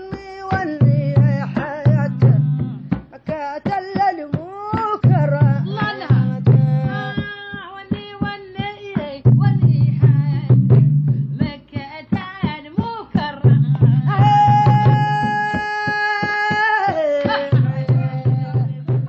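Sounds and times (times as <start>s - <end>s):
person singing: 0.0s - 7.9s, 13.1s - 19.0s
drum beating: 0.0s - 19.0s.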